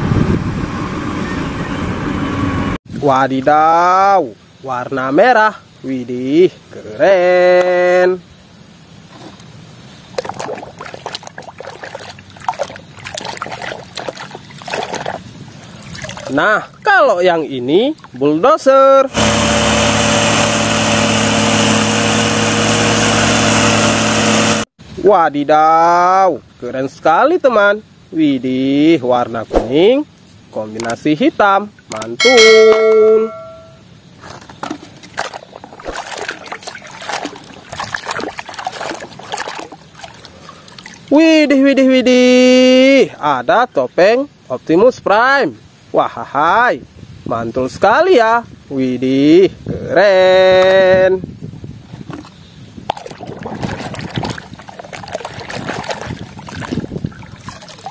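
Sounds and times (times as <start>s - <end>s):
splashing in muddy water: 9.0s - 18.4s, 29.5s - 29.9s, 31.8s - 41.7s, 51.9s - 57.9s.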